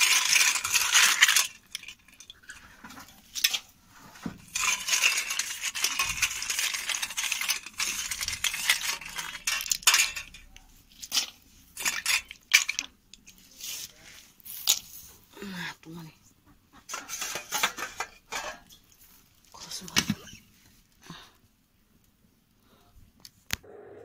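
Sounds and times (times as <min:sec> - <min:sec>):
dishes and utensils clinking: 0:04.5 - 0:12.9, 0:16.8 - 0:18.9.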